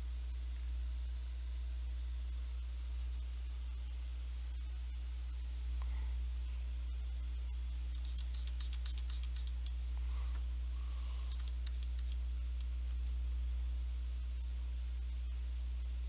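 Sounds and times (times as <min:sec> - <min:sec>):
low electrical hum: 0:00.0 - 0:16.0
quick clicking and scratching: 0:07.9 - 0:10.4, 0:11.1 - 0:13.2.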